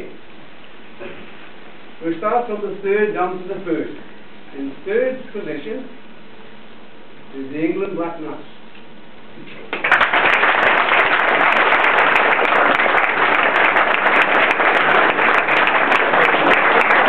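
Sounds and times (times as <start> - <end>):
roomful of people clapping: 9.6 - 17.0.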